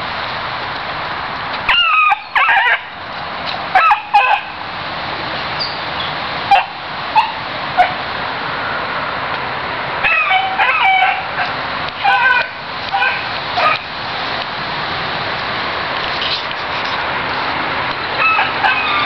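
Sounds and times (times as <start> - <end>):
dog yips: 6.5 - 8.0, 10.0 - 13.8, 18.2 - 19.0
dog pup baying and howling: 10.0 - 13.8, 18.2 - 19.0
steady hiss: 11.3 - 18.2.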